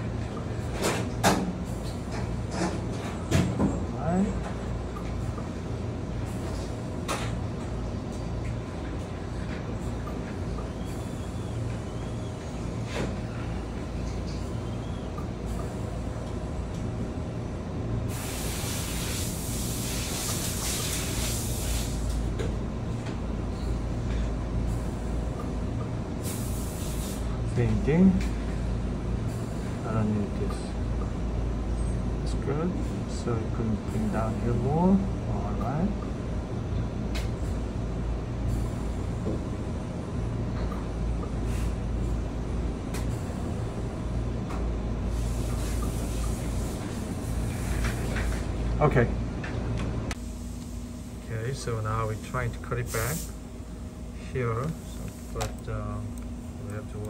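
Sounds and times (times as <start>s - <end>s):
low background hum: 0.0s - 57.0s
hiss: 18.1s - 22.2s, 26.2s - 27.3s, 45.1s - 48.4s.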